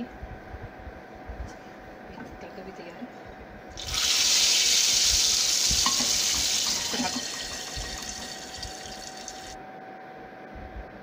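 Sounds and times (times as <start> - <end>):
hot oil sizzling: 3.8 - 9.6.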